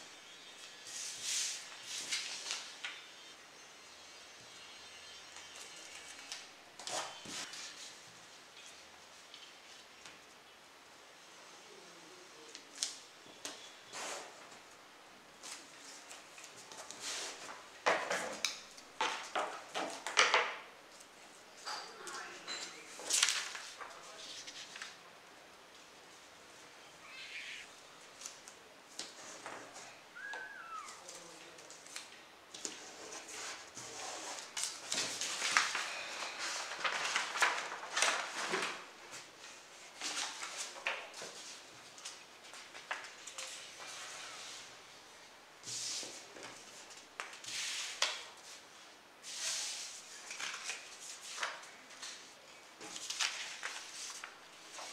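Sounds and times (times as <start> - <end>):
paper rustling on wooden table: 22.8 - 25.0, 32.6 - 44.2, 52.8 - 54.9.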